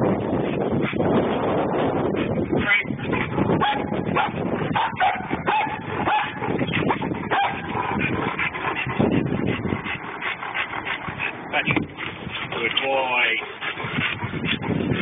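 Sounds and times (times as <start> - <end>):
dog whining and yipping: 2.7 - 8.1.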